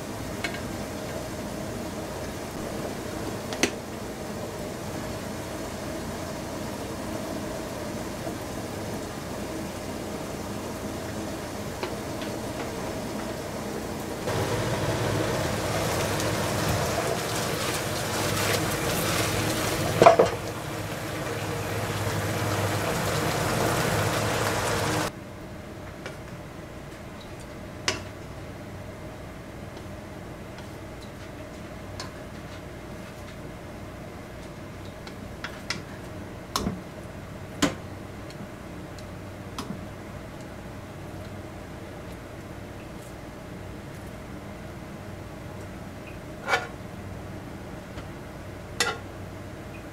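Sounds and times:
sauce bubbling and sizzling in pan: 0:00.0 - 0:25.1
faint hum: 0:00.0 - 0:35.1
tongs clacking on plate and pan: 0:48.8 - 0:49.0.

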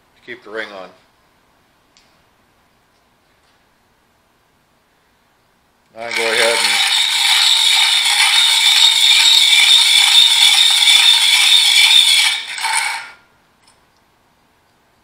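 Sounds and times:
abrasive wheel grinding metal ring: 0:06.1 - 0:13.2.

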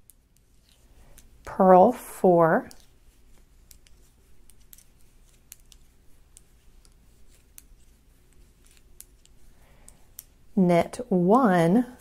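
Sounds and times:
knitting needles clicking: 0:02.7 - 0:10.6.

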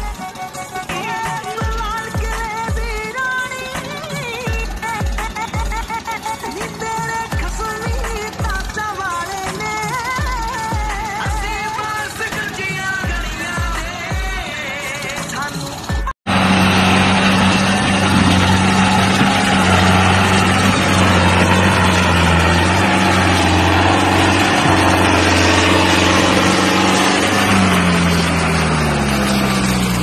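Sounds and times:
tractor diesel engine revving: 0:00.0 - 0:30.0.

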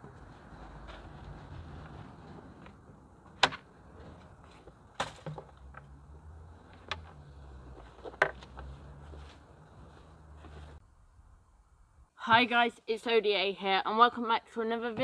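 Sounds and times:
canvas rustling: 0:00.2 - 0:02.9, 0:06.4 - 0:10.8.

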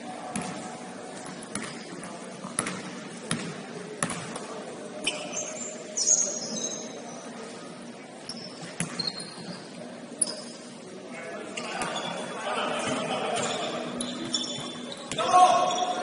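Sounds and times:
murmur of the hall: 0:00.0 - 0:16.0
sneaker squeaks: 0:01.3 - 0:03.4, 0:05.0 - 0:07.4, 0:08.2 - 0:10.8, 0:11.5 - 0:16.0.

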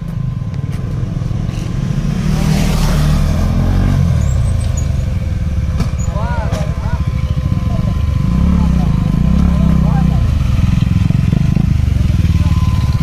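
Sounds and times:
motorcycle engines running: 0:00.0 - 0:13.0
motorcycle revving past: 0:01.5 - 0:13.0.

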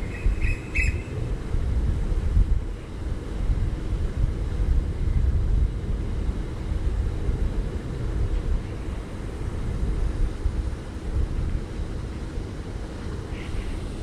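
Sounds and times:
wind buffeting microphone: 0:00.0 - 0:14.0.

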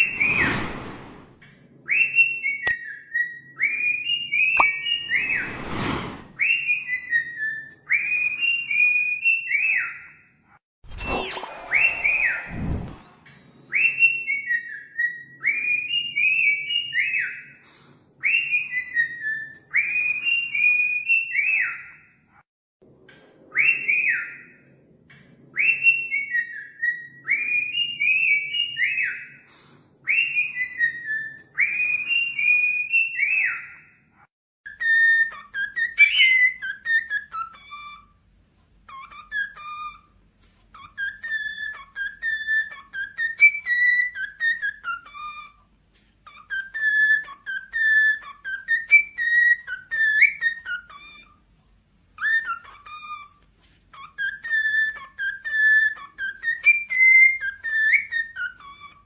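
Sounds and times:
cockatiel whistling song: 0:01.8 - 0:05.6, 0:06.4 - 0:10.2, 0:11.3 - 0:17.6, 0:18.2 - 0:22.1, 0:23.5 - 0:24.6, 0:25.5 - 0:34.0, 0:34.7 - 0:38.2, 0:38.9 - 0:51.4, 0:52.2 - 0:59.0.

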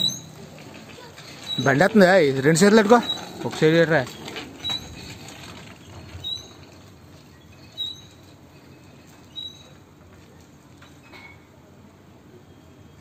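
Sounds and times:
bicycle squeaking: 0:00.0 - 0:10.0.

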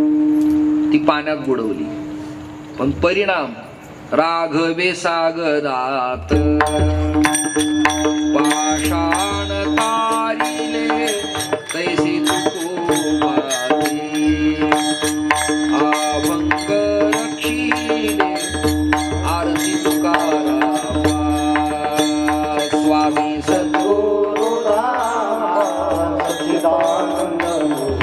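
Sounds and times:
hand cymbals clashing: 0:06.3 - 0:28.0
voices singing: 0:08.2 - 0:28.0.

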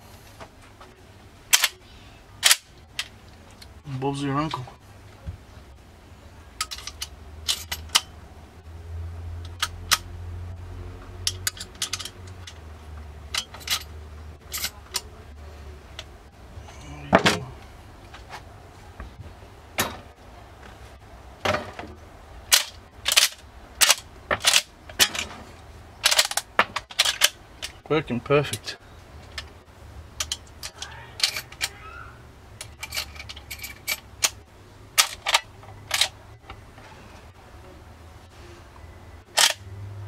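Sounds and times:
rifle lever metallic clicks: 0:39.4 - 0:39.6.

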